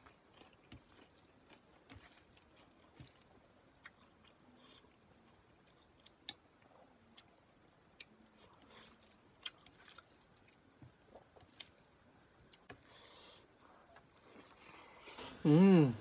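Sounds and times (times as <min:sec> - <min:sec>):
wet squishes of hand mixing rice: 0:00.0 - 0:04.8, 0:08.2 - 0:12.8.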